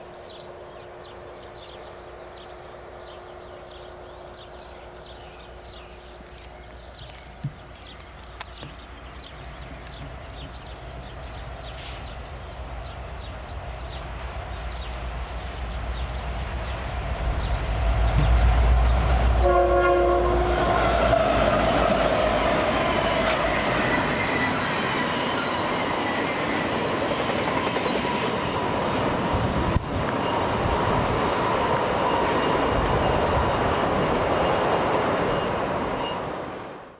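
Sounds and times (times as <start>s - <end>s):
wheel-on-rail noise: 0.0s - 36.5s
locomotive engine rumble: 0.2s - 24.6s
multi-tone air horn: 19.4s - 21.0s.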